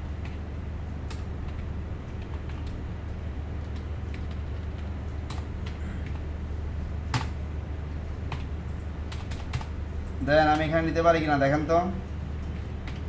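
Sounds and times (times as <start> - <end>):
steady low hum: 0.0 - 13.0
computer keyboard key clicks: 9.1 - 9.7.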